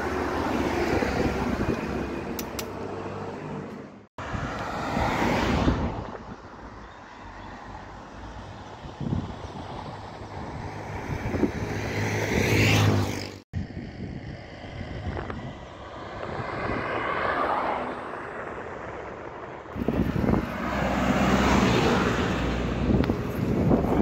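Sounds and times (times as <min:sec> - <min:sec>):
wind rumbling on microphone: 0:00.0 - 0:02.4, 0:04.2 - 0:24.0
vehicle passing: 0:00.0 - 0:06.1, 0:07.1 - 0:24.0
road traffic: 0:00.0 - 0:24.0.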